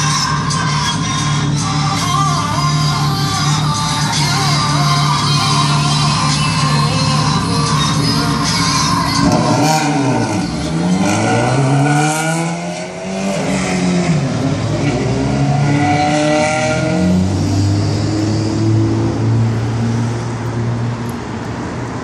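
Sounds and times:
engine revving and accelerating: 4.9s - 20.9s.

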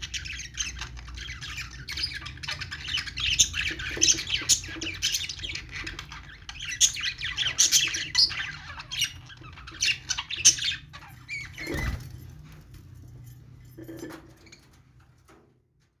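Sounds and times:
wings fluttering: 11.5s - 12.3s.

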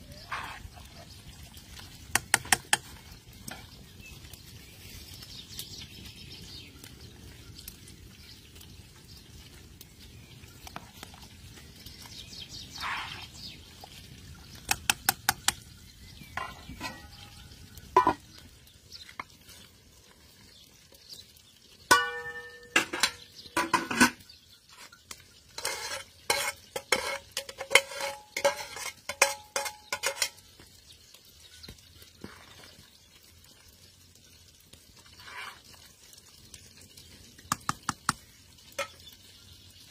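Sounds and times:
pot of broth bubbling: 0.0s - 39.9s
metal utensils clinking on pot: 2.1s - 3.8s, 14.6s - 18.4s, 21.9s - 30.6s, 37.6s - 39.2s.

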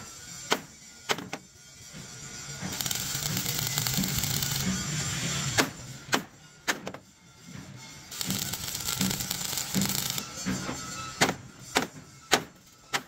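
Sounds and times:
stick welding crackling hiss: 2.4s - 5.8s, 8.1s - 10.6s
hammer strikes on steel: 2.6s - 7.1s, 8.1s - 13.0s.

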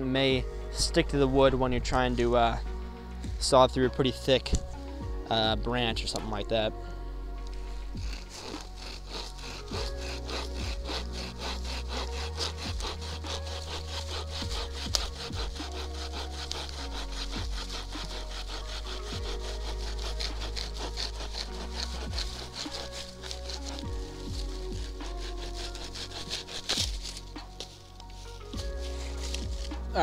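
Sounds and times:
saw cutting branch: 7.4s - 30.0s
branch cracking: 19.7s - 30.0s.

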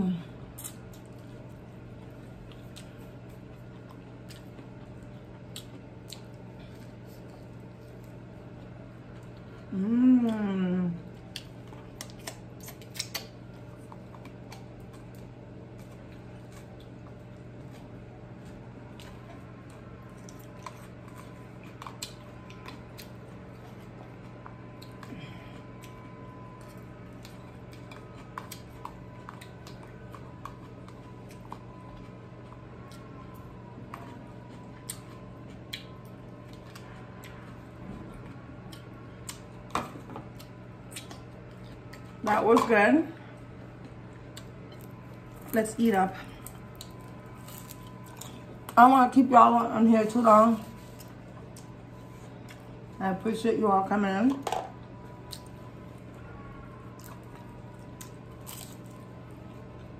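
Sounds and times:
low background hum: 0.0s - 59.9s
mouth clicks and crunches: 11.2s - 15.3s.

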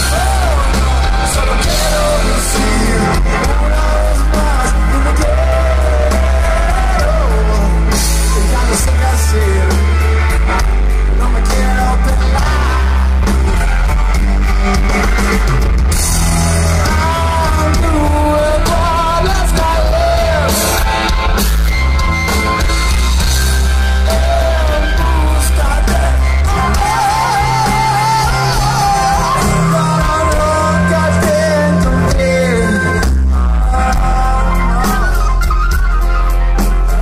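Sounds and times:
person singing: 0.0s - 10.0s, 11.1s - 13.8s, 16.4s - 20.9s, 23.9s - 35.8s
heavy bass: 0.0s - 37.0s
live rock band: 0.0s - 37.0s.

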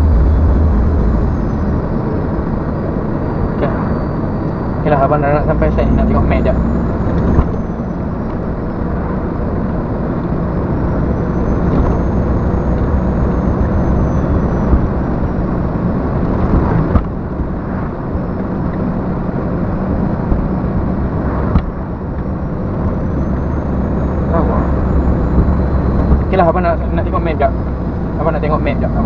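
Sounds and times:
truck engine and road drone: 0.0s - 29.0s.

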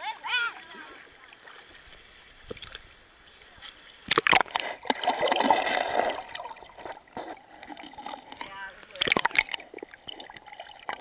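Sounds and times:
splashing water: 0.0s - 11.0s
muffled underwater bubbling: 4.1s - 11.0s.

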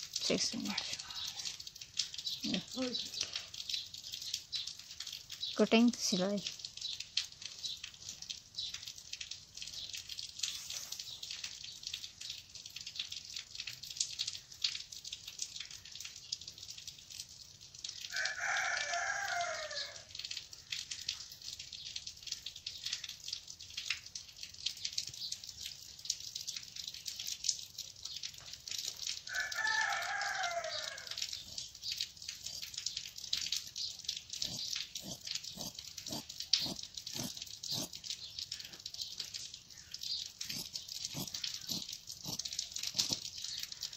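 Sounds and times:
rooster crowing: 18.1s - 20.1s, 29.3s - 31.2s.

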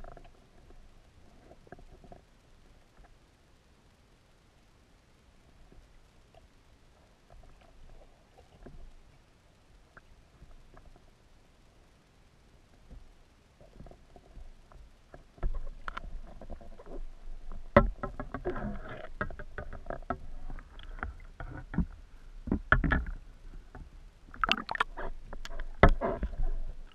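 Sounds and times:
water sloshing against camera housing: 15.3s - 26.9s
clicks and knocks: 17.6s - 26.4s.

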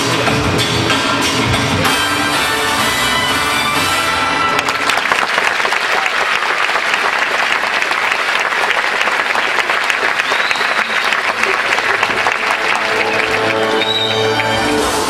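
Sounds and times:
music playing: 0.0s - 5.0s, 11.4s - 15.0s
audience applauding: 4.5s - 15.0s.

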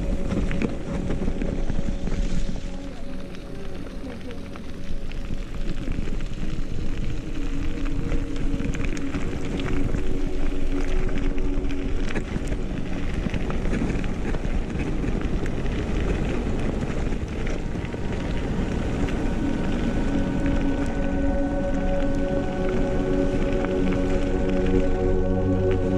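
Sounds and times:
bike rattling: 0.0s - 25.9s
tyres crunching over gravel: 0.0s - 25.9s
wind on microphone: 0.0s - 25.9s.

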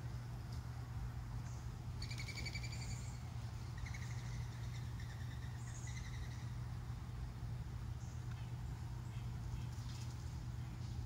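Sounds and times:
steady low hum: 0.0s - 11.0s
bird buzzy calls: 1.4s - 7.0s.

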